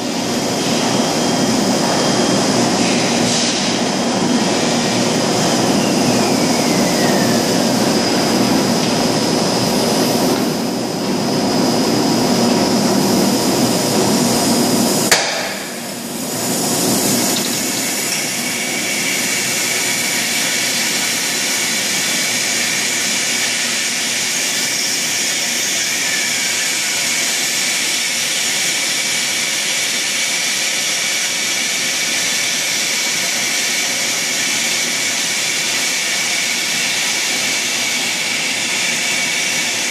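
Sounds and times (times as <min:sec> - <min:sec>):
machinery running: 0:00.0 - 0:39.9
sharp knock: 0:15.1 - 0:15.8.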